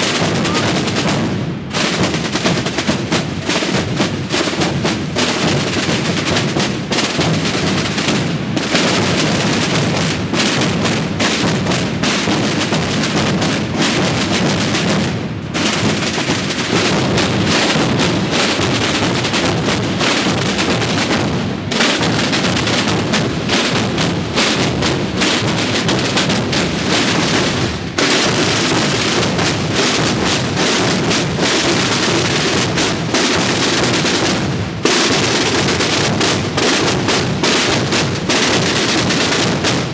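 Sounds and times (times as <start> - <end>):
massed drumming: 0.0 - 39.9.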